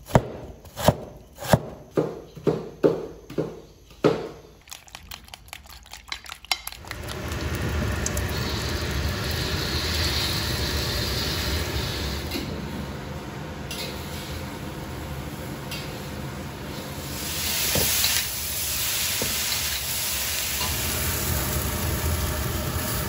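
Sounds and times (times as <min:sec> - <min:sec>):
cleaver chop on wooden board: 0:00.1 - 0:04.3
egg sizzling in hot oil: 0:04.6 - 0:12.4, 0:17.0 - 0:23.0.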